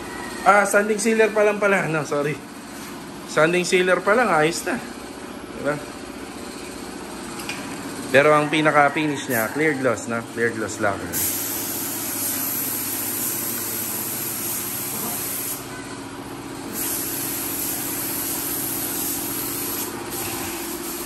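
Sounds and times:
air compressor humming: 0.0s - 21.0s
spray gun hissing: 11.2s - 15.7s, 16.7s - 21.0s.

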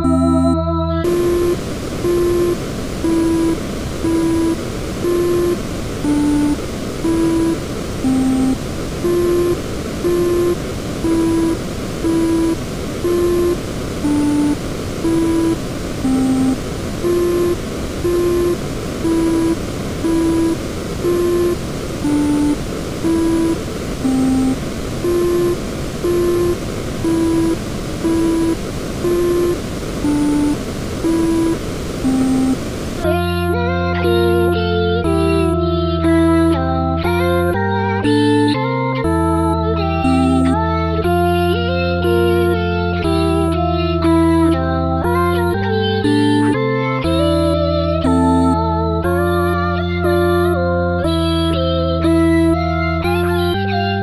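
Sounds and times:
electronic beeps: 0.0s - 32.7s, 38.2s - 40.6s, 47.3s - 48.6s
static-like noise: 0.0s - 54.0s.

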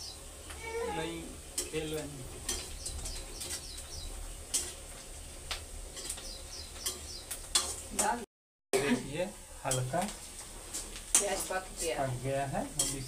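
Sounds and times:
small bird chirping: 2.6s - 4.3s, 6.1s - 7.4s.

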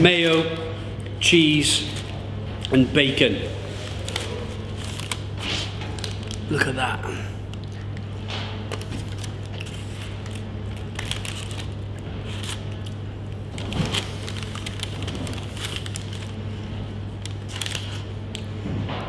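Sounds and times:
steady low hum: 0.0s - 19.0s
crackles and clicks from handling food: 3.9s - 16.4s, 17.0s - 18.6s.

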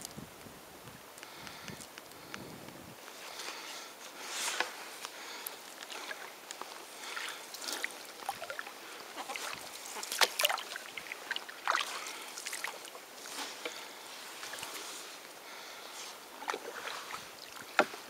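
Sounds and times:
water splashing along canoe hull: 3.2s - 18.0s
small splashes and drips: 5.2s - 15.1s, 16.4s - 18.0s.

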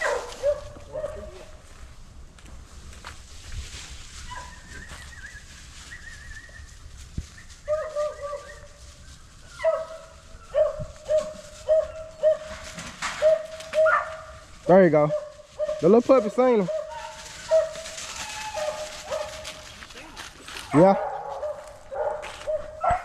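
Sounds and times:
puppy yelping barks: 0.0s - 1.2s, 9.6s - 12.5s, 13.2s - 14.3s, 20.7s - 23.0s.

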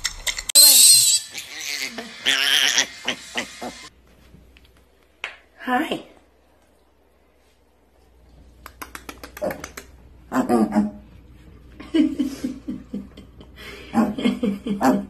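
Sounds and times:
sharp clicks: 8.6s - 9.9s
woman laughing softly: 11.8s - 15.0s.

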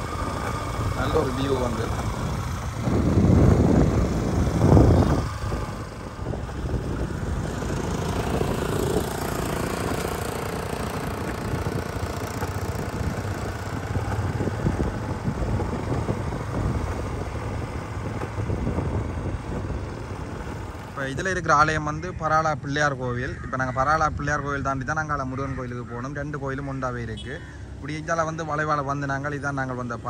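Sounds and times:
wind rumbling on microphone: 0.0s - 22.6s
motorcycle engine running: 0.0s - 30.0s.

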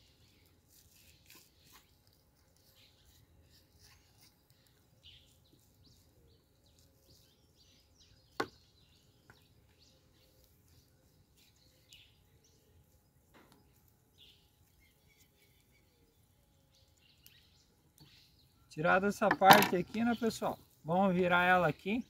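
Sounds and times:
faint knife cutting and scraping: 0.3s - 7.5s.

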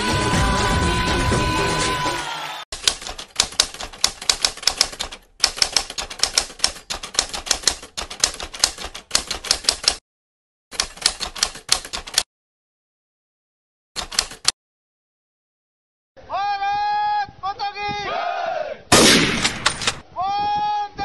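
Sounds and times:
typewriter key clacks: 2.8s - 10.0s, 10.8s - 12.3s, 14.0s - 14.6s.

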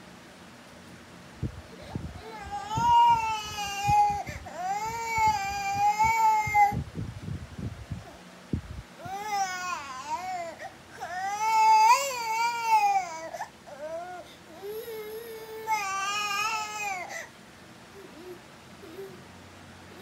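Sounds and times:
baby crying: 9.1s - 17.3s
baby whimpering: 9.1s - 17.3s, 17.9s - 19.2s.

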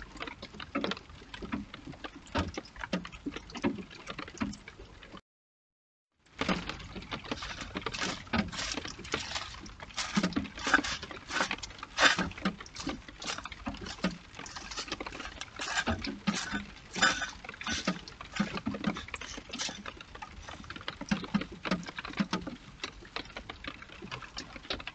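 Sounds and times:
hedgehogs rustling through leaves: 7.3s - 19.8s.

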